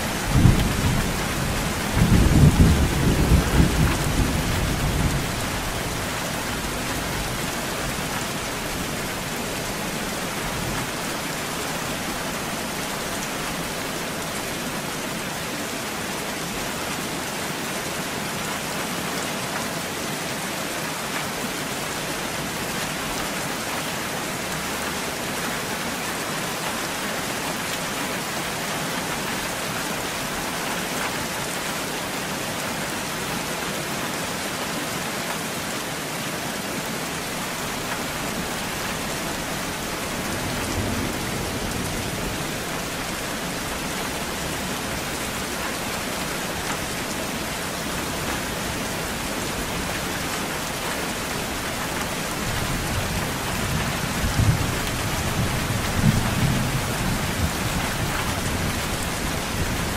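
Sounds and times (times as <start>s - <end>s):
thunder rumbling: 0.0s - 6.8s, 38.4s - 46.2s
steady rain falling: 0.0s - 59.9s.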